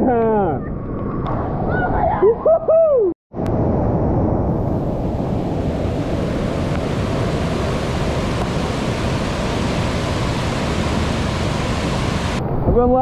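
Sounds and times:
water rushing over rocks: 5.2s - 12.4s.

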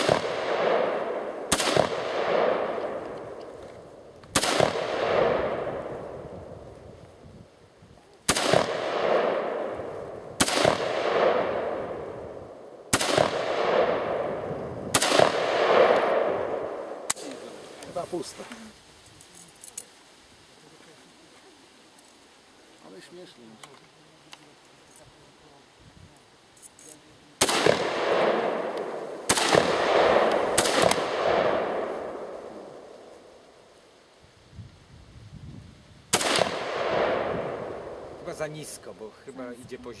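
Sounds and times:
gunshot echo: 0.0s - 3.4s, 4.3s - 6.0s, 8.3s - 12.3s, 12.9s - 17.6s, 27.4s - 33.0s, 36.1s - 38.1s
rifle shots: 0.0s - 3.5s, 4.3s - 6.0s, 8.3s - 12.3s, 12.9s - 17.4s, 27.4s - 33.0s, 36.1s - 38.0s
gunshot echo rolling away: 12.9s - 17.5s, 27.4s - 33.0s.

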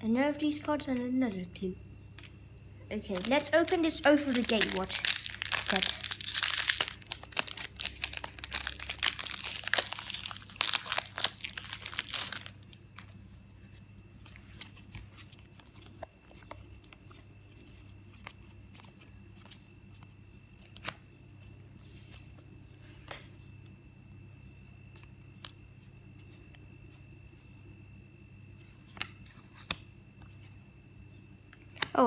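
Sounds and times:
wrapper tearing and crinkling: 3.1s - 12.7s.

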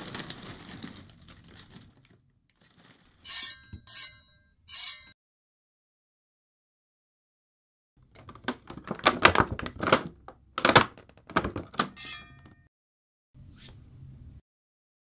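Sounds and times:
short metallic ring: 3.3s - 5.2s, 11.9s - 12.7s.

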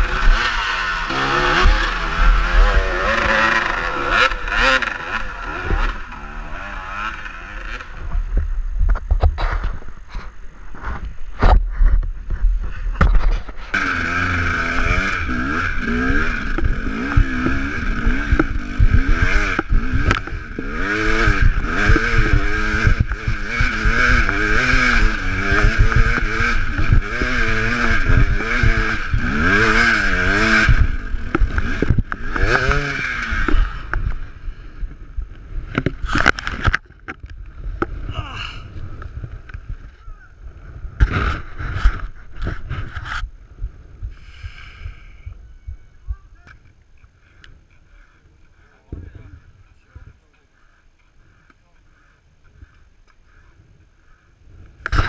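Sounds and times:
motorcycle engine revving: 0.0s - 43.3s.

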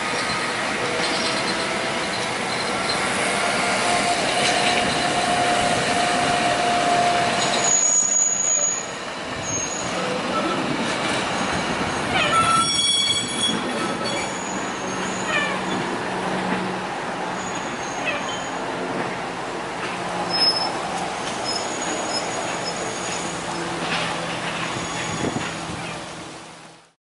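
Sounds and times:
steel wheels on rail: 0.0s - 26.8s
thin wheel squeal: 12.2s - 15.8s.

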